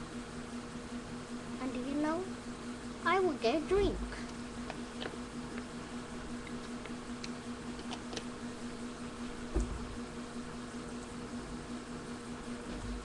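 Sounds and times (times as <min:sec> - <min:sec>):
steady low hum: 0:00.0 - 0:13.0
soft thump: 0:09.5 - 0:09.9.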